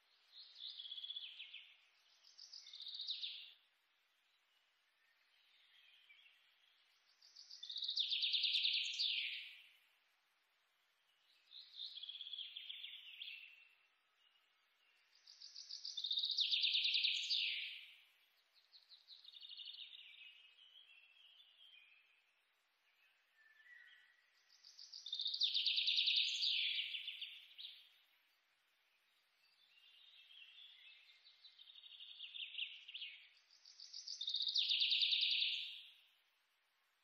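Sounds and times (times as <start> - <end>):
bird singing trills: 29.4 - 36.0.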